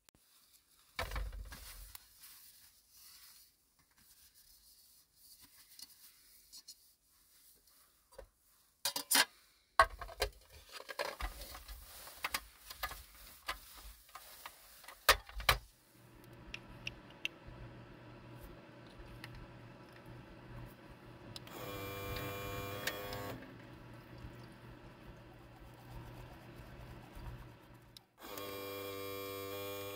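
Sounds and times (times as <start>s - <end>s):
faint steady hum: 15.8s - 29.9s
water dispenser pump whine: 15.9s - 29.9s.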